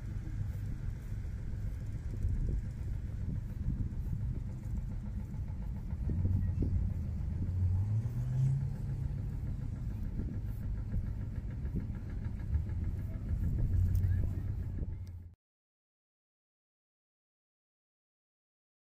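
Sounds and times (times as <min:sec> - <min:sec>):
vehicle engine rumbling: 0:00.0 - 0:15.4.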